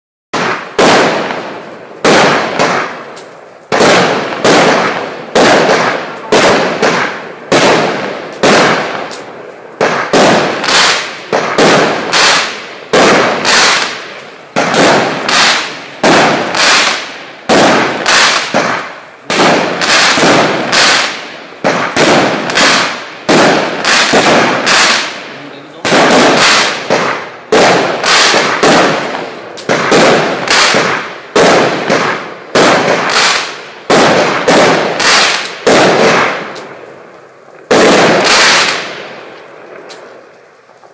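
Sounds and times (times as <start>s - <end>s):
firework cake bangs: 0.4s - 36.8s, 37.7s - 40.1s.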